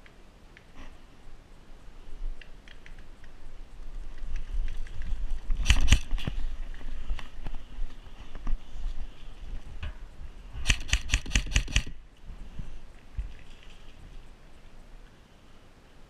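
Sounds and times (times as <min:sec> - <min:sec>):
gear rattling: 0:04.3 - 0:06.4.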